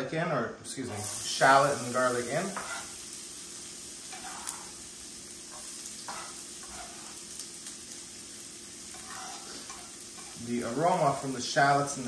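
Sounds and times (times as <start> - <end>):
shallots sizzling in oil: 0.8 - 12.0
soft stirring: 2.3 - 3.0, 4.0 - 4.8, 5.5 - 7.5, 8.9 - 11.5.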